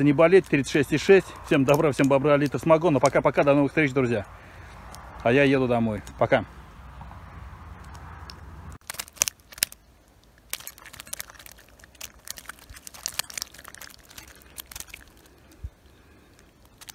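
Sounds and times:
close crackling and rustling: 0:00.0 - 0:05.3, 0:07.0 - 0:16.9.

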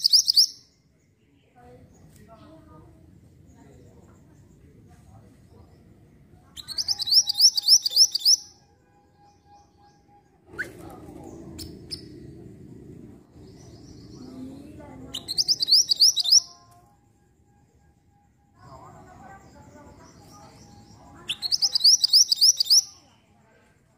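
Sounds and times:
low rumbling background: 0:10.5 - 0:15.2.

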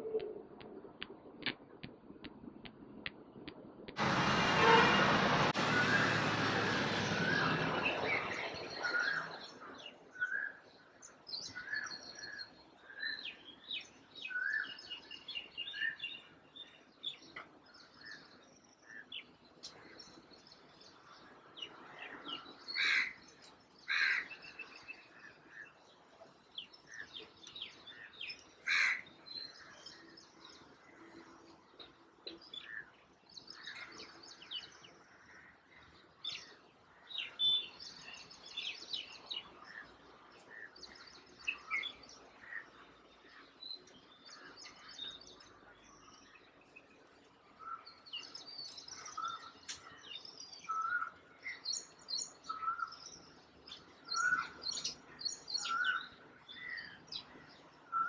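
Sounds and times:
sparrows chirping: 0:32.2 - 0:58.0.

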